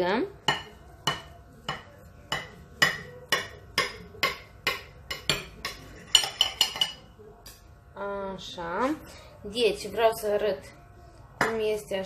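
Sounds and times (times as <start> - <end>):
cutlery clicking on ceramic plate: 0.6 - 7.0.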